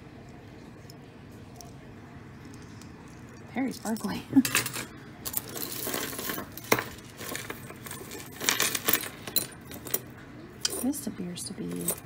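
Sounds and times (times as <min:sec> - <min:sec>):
metal jewelry clinking: 0:02.4 - 0:12.0.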